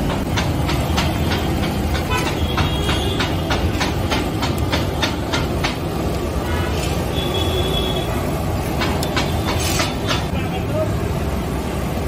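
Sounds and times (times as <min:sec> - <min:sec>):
sharp regular clicks: 0:00.0 - 0:06.2, 0:08.6 - 0:10.3
oil sizzling and bubbling: 0:00.0 - 0:12.0.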